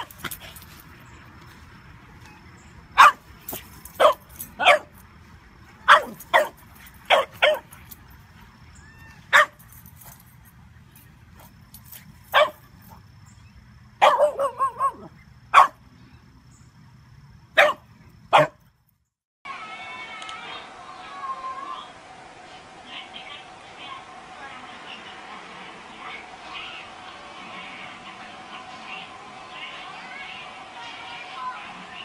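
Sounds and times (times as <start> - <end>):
small dog barking: 3.0 - 5.0, 5.8 - 7.8, 9.3 - 9.6, 12.3 - 12.7, 14.0 - 15.8, 17.6 - 18.6.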